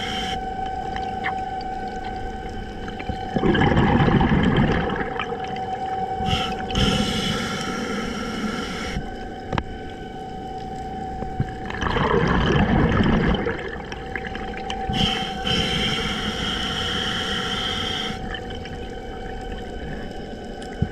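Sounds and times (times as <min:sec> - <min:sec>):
regulator inhale whistling hiss: 0:00.0 - 0:00.4, 0:06.2 - 0:09.1, 0:14.9 - 0:18.3
faint steady hum: 0:00.0 - 0:20.9
gurgling exhaled bubbles: 0:00.9 - 0:08.0, 0:11.5 - 0:20.9.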